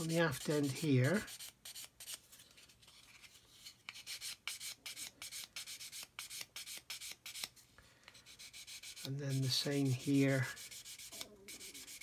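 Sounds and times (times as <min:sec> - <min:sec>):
sanding stick rubbing plastic: 0:00.0 - 0:02.2, 0:08.2 - 0:12.0.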